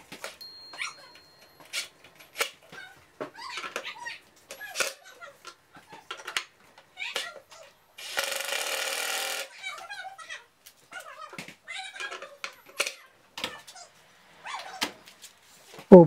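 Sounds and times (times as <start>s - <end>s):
drill driving a screw: 8.0s - 9.5s.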